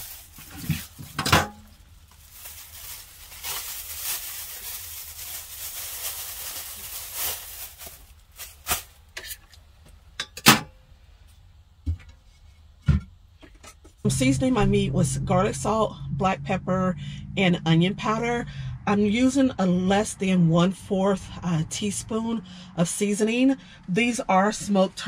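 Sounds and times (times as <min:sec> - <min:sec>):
plastic bag rustling: 0:00.0 - 0:09.5.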